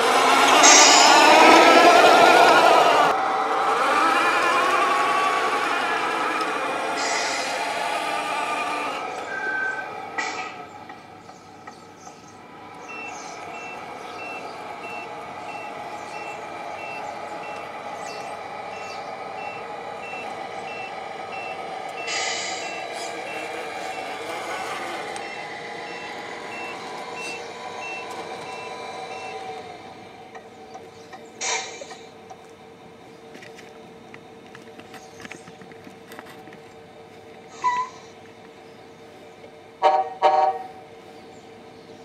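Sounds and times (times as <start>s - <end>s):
electric motor whine: 0.0s - 10.0s, 12.5s - 30.2s
reversing beeper: 0.2s - 3.2s, 9.0s - 10.0s, 12.8s - 29.6s
short hiss: 22.1s - 22.6s.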